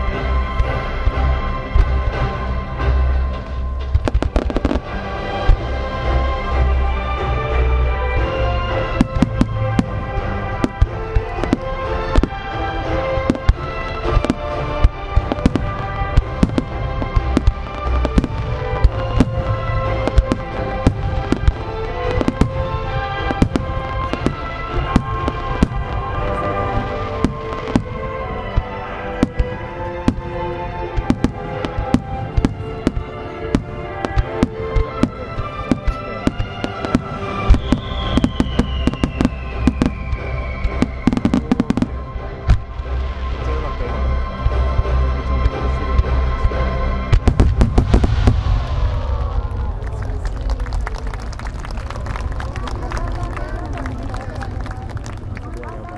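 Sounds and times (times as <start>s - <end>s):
music: 0.0s - 55.9s
firework shells bursting: 31.0s - 41.8s.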